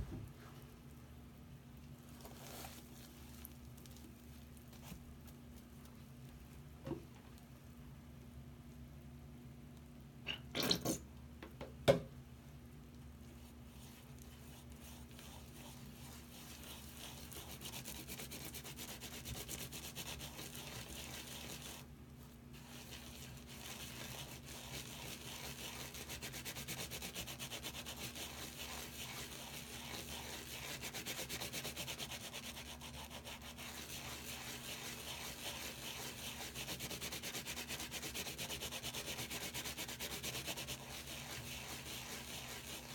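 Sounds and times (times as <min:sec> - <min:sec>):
fingers rubbing soapy sponge: 0:13.4 - 0:21.9, 0:22.5 - 0:42.9.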